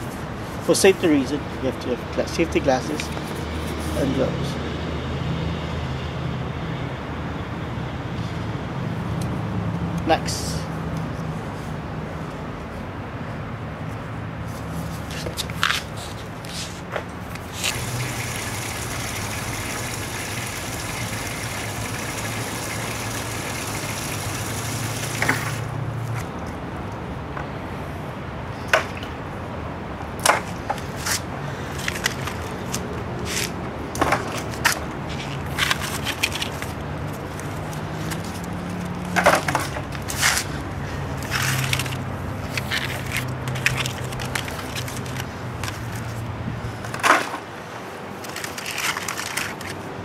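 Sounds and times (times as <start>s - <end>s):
steady hum with hiss: 15.9s - 26.1s.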